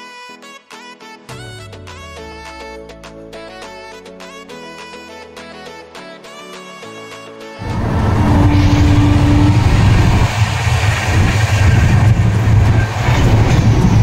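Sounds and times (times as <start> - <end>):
short steady tone: 7.6 - 10.3
train wheels rumbling on track: 7.6 - 14.0.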